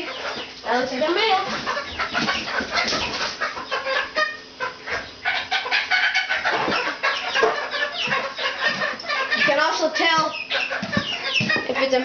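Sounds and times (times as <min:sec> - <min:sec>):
young chickens calling: 0:00.0 - 0:12.0.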